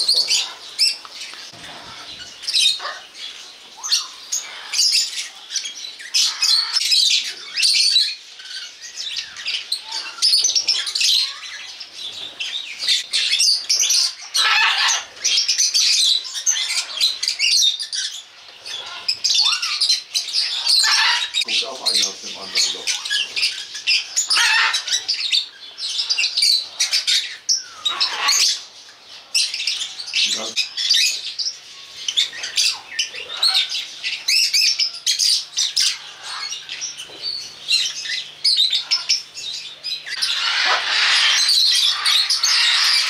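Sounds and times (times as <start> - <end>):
birds chirping and squawking: 0.0 - 43.0.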